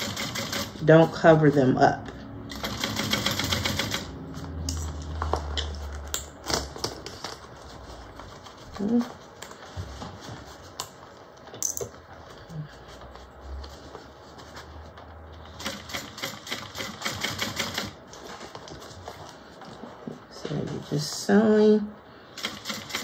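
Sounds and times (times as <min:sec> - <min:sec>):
sewing machine stitching: 0:00.0 - 0:01.5, 0:02.5 - 0:04.2, 0:15.4 - 0:18.0, 0:22.3 - 0:23.0.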